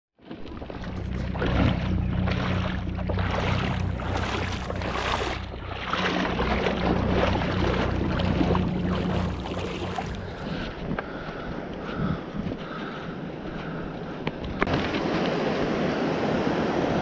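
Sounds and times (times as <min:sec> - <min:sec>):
water splashing from wading: 0:00.2 - 0:11.8
low hum: 0:00.3 - 0:11.4.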